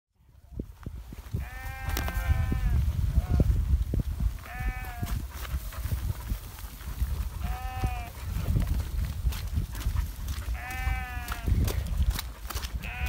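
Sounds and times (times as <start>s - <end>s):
sheep bleating: 1.4s - 3.5s, 4.4s - 5.1s, 7.4s - 8.2s, 10.6s - 11.5s, 12.8s - 13.0s.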